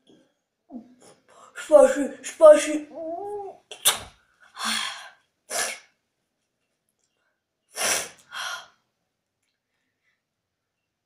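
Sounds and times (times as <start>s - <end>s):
short sharp puffs of breath: 7.7s - 8.8s.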